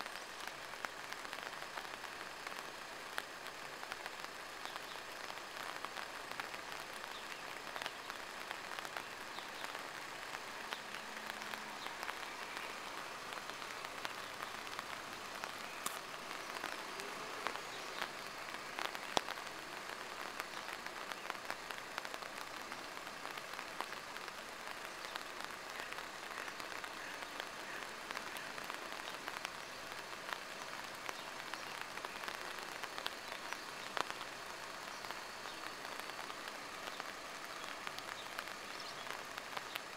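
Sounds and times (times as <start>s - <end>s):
rain pattering: 0.0s - 39.9s.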